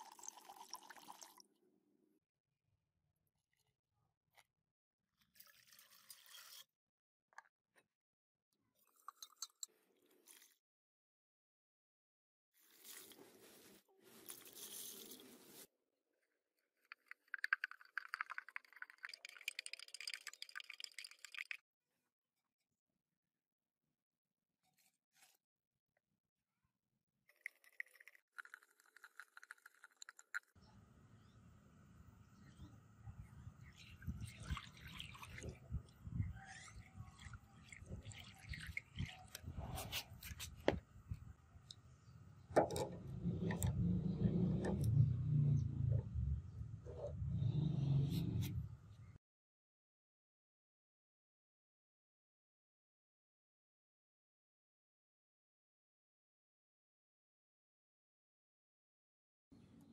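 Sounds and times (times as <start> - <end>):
liquid pouring into steel trough: 0.0 - 1.4, 16.9 - 21.6, 33.6 - 40.6
granules poured into water: 17.2 - 21.6
low steady rumble: 42.9 - 49.0.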